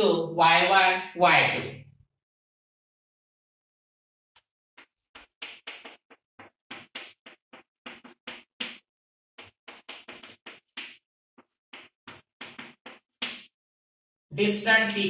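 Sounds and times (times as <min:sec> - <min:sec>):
chalk scratching on blackboard: 0:04.8 - 0:08.8, 0:09.4 - 0:13.5.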